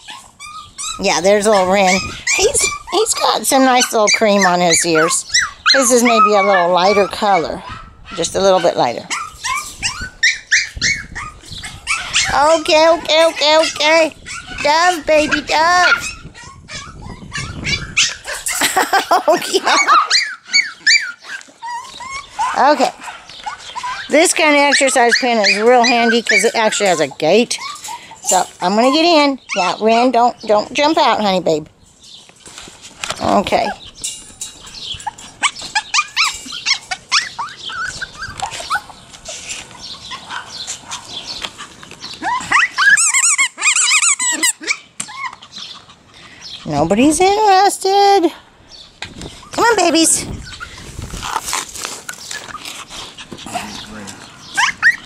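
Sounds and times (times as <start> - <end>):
puppy yipping and whining: 0.0 - 18.8, 19.6 - 28.2, 33.7 - 41.0, 41.6 - 46.1, 54.5 - 55.0.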